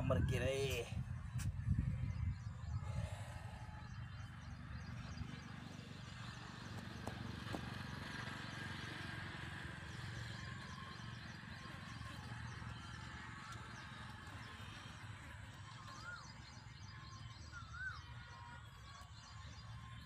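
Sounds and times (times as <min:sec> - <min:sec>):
wind rumbling on microphone: 0:00.0 - 0:05.5.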